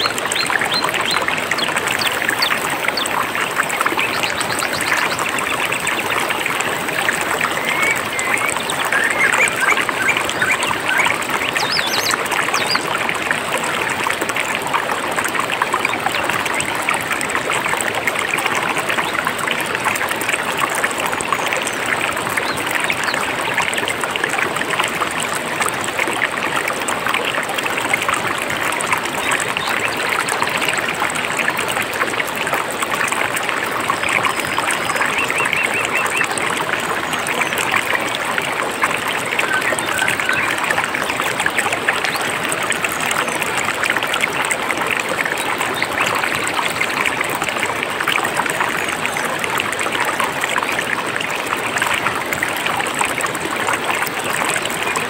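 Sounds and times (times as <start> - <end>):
mountain stream flowing: 0.0 - 55.0
faint bird chirps: 3.8 - 12.8.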